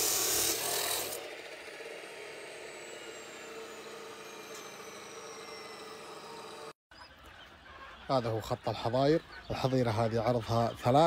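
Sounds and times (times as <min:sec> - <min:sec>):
cut-off saw cutting steel: 0:00.0 - 0:06.8
saw disc spinning down: 0:00.0 - 0:06.8.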